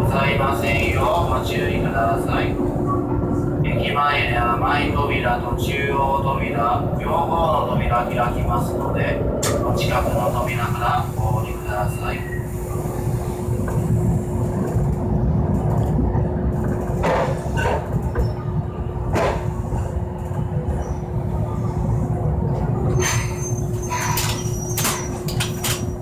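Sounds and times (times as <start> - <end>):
tram rumble and hum: 0.0 - 26.0
faint high squeals: 22.9 - 25.9.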